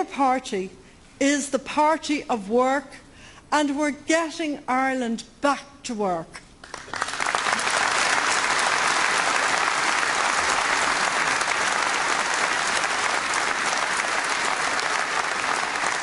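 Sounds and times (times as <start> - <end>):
audience applauding: 6.6 - 16.0.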